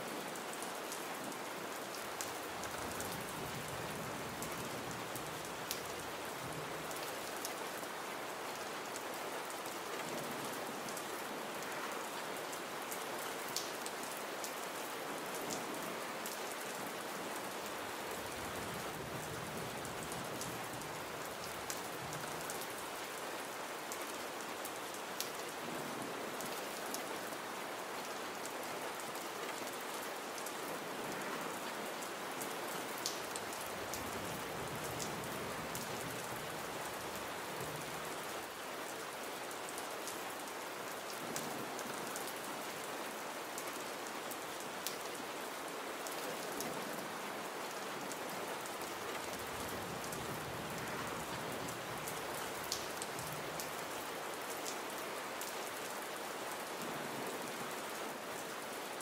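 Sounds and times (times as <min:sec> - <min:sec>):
gentle rain hissing: 0:00.0 - 0:45.5, 0:46.4 - 0:56.2.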